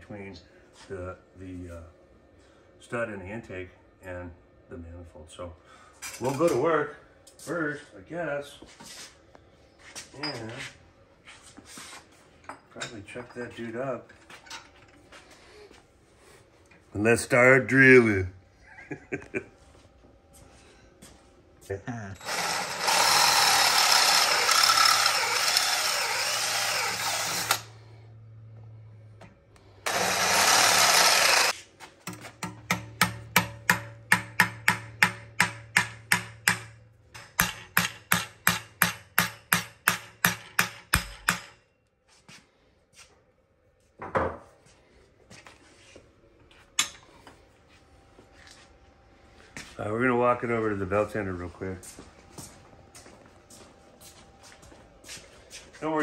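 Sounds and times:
cordless drill boring: 0:22.2 - 0:27.7, 0:29.8 - 0:31.6
small hammer tapping metal: 0:32.1 - 0:41.6.

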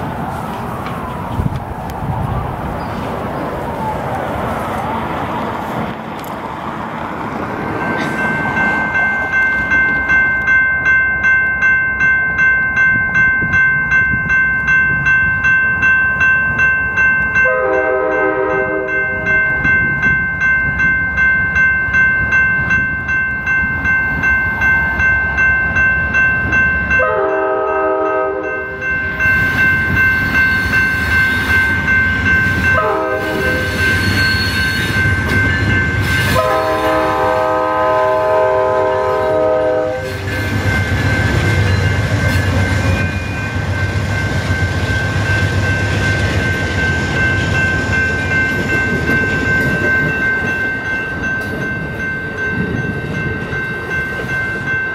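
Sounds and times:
crossing bell ringing: 0:06.9 - 0:54.9
locomotive air horn blasts: 0:17.4 - 0:19.0, 0:27.0 - 0:28.7, 0:32.6 - 0:34.9, 0:36.1 - 0:40.6.

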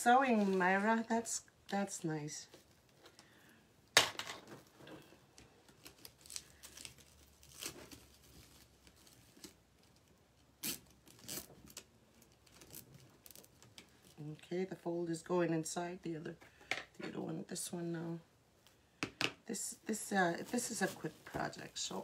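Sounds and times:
mesh ribbon rustling and crinkling: 0:04.5 - 0:14.4, 0:20.0 - 0:22.0.

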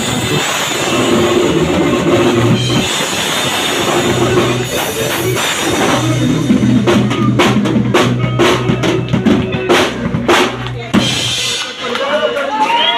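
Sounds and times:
cymbal crashes: 0:00.0 - 0:06.7
low bass guitar note: 0:03.7 - 0:11.0.

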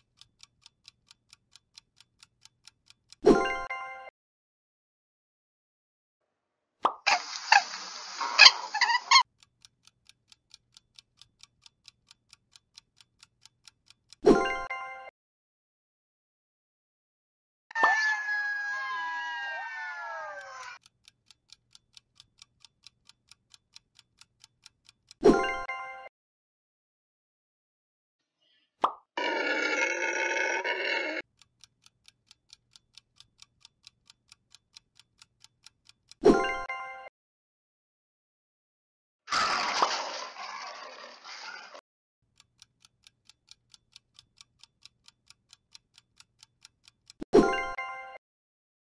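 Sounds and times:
countdown clock ticking: 0:00.0 - 0:04.1, 0:09.2 - 0:15.1, 0:20.8 - 0:26.1, 0:31.2 - 0:37.1, 0:42.2 - 0:47.8
rabbit squeaks: 0:07.1 - 0:09.2
howler monkey roaring: 0:29.2 - 0:31.2.

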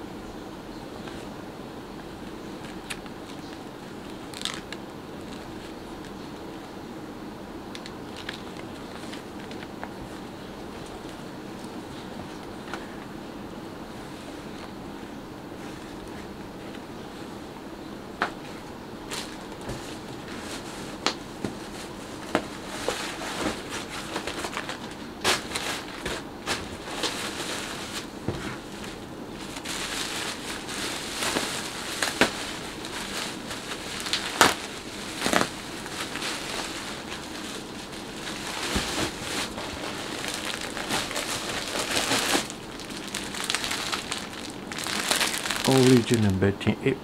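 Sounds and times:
plastic packaging crinkling: 0:02.6 - 0:06.2, 0:07.7 - 0:13.0, 0:19.1 - 0:46.3.

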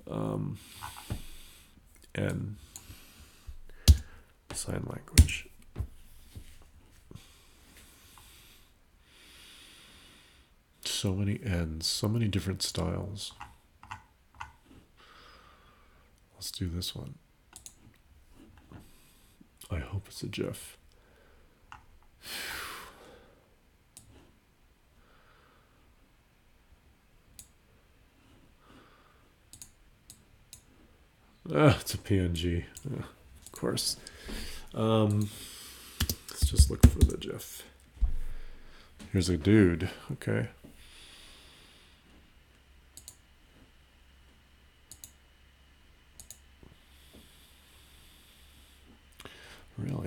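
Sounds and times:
computer mouse clicks: 0:13.4 - 0:14.6, 0:17.5 - 0:18.0, 0:29.5 - 0:30.7, 0:36.0 - 0:37.2, 0:42.9 - 0:43.2, 0:44.9 - 0:45.2, 0:46.2 - 0:46.4.

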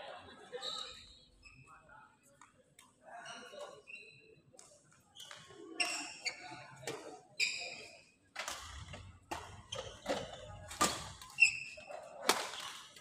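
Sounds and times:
sneakers squeaking on court: 0:05.2 - 0:06.6, 0:08.6 - 0:11.9.

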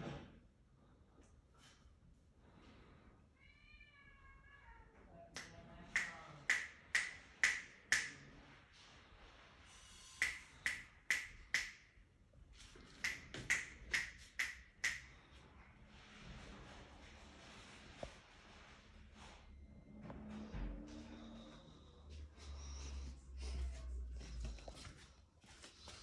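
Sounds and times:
sharp finger snaps: 0:05.4 - 0:08.2, 0:10.2 - 0:11.8, 0:13.0 - 0:15.1.

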